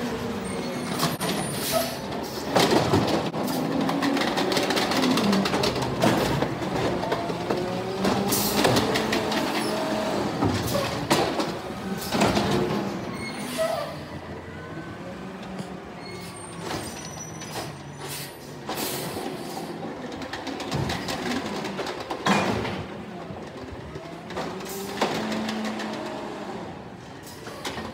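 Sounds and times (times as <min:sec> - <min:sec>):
cart banging against hopper: 0:20.2 - 0:23.0.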